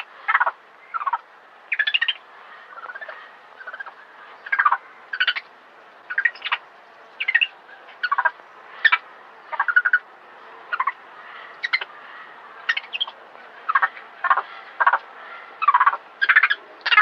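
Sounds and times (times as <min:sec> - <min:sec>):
monkey pulsed distress calls: 0:07.2 - 0:10.0.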